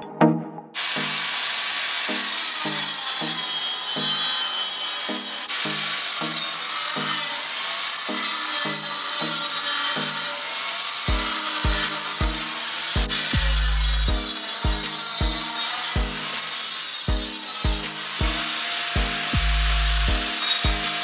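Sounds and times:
background music with bass: 0.0s - 0.8s, 11.1s - 16.4s, 17.1s - 21.0s
power tool grinding metal: 0.8s - 21.0s.

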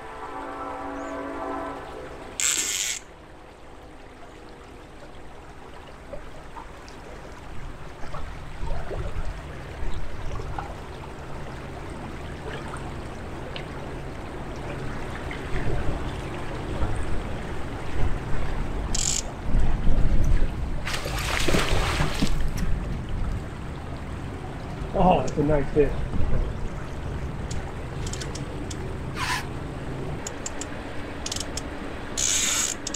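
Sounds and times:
river water lapping against hull: 0.0s - 32.9s
faint light ticks: 27.4s - 28.8s, 30.2s - 31.7s.

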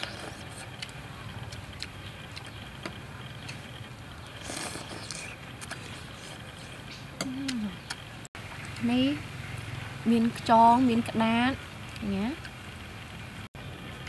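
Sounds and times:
person slurping: 4.4s - 7.7s.

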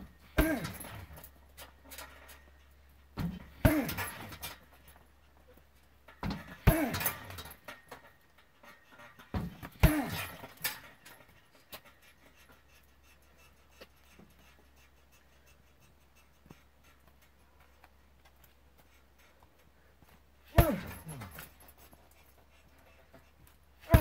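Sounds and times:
kicks thudding on punching bag: 0.3s - 1.0s, 3.2s - 4.4s, 6.2s - 7.3s, 9.3s - 10.4s, 20.5s - 21.5s.

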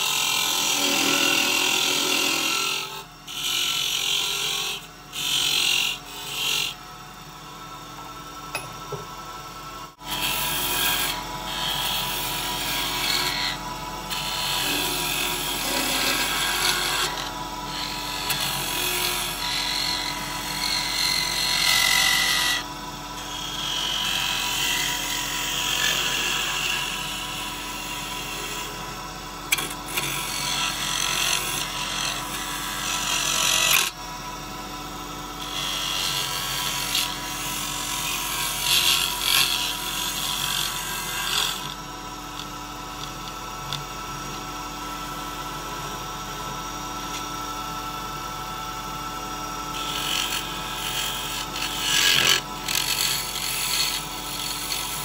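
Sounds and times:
turning tool scraping wood: 0.0s - 6.8s, 10.0s - 22.6s, 29.5s - 34.0s, 35.4s - 44.4s, 49.7s - 55.0s
wood lathe motor hum: 0.0s - 55.0s.

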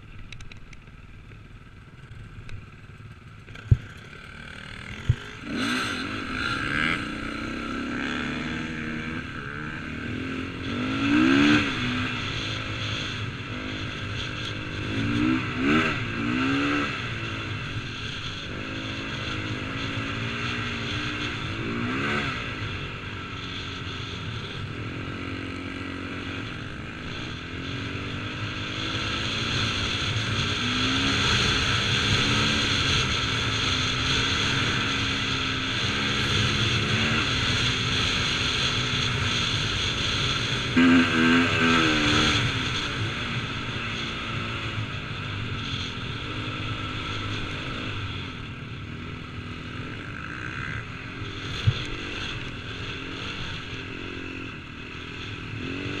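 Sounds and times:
motocross engine revving: 3.6s - 14.0s, 39.4s - 44.7s.

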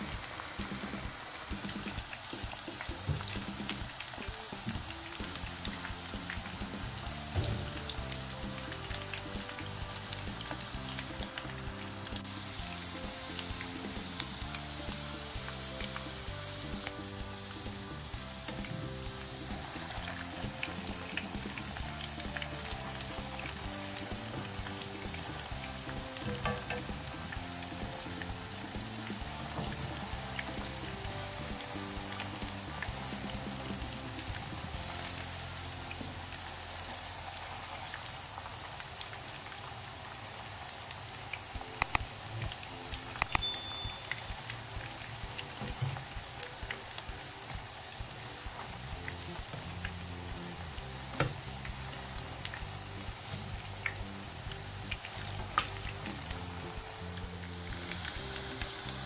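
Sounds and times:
background music: 0.0s - 59.0s
oil sizzling in frying pan: 0.0s - 59.0s
small oil pops: 41.8s - 42.1s.

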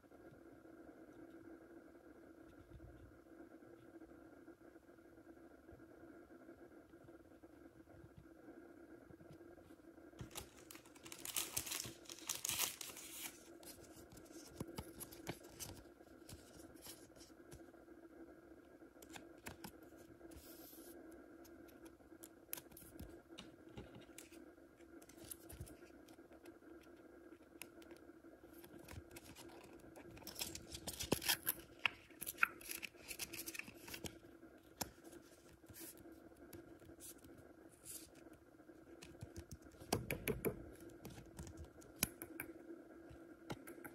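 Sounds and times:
faint steady hum: 0.0s - 43.9s
plastic card sleeves rustling: 10.2s - 17.6s, 28.6s - 34.2s.

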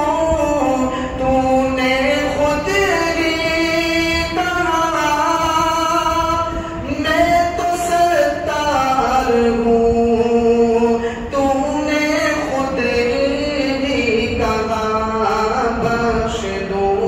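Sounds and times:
man chanting into microphone: 0.0s - 17.0s
breath: 0.9s - 1.2s, 6.5s - 6.8s, 11.0s - 11.3s.

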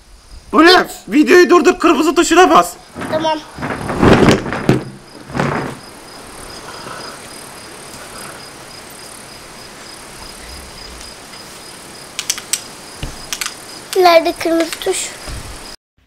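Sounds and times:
low background hiss: 0.0s - 3.8s
insect chirping: 0.0s - 15.8s
rustling: 2.4s - 13.6s
sharp clicks: 12.1s - 15.0s.

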